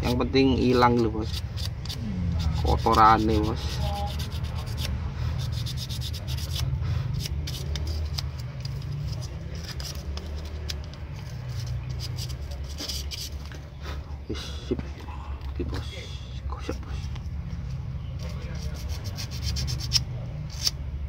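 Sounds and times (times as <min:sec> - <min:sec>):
sandpaper scratching: 0:00.0 - 0:13.5, 0:18.2 - 0:20.8.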